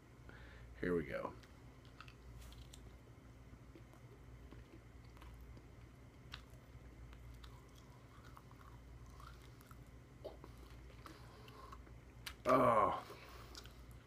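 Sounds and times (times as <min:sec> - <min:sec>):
low room hum: 0:00.0 - 0:14.0
chewing bubble gum: 0:03.6 - 0:12.5, 0:13.2 - 0:14.0.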